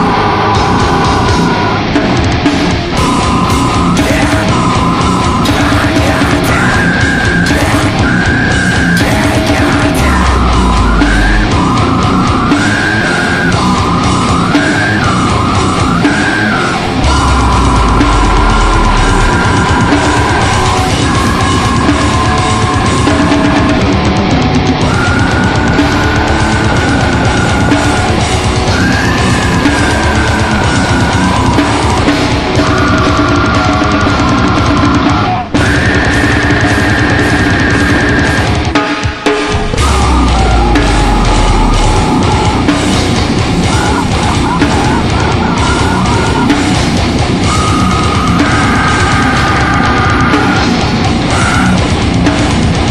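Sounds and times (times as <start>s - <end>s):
death metal song: 0.0s - 52.9s
heavy metal music: 0.0s - 52.9s
high wavering guitar line: 0.0s - 52.9s
deep low note: 39.5s - 43.7s.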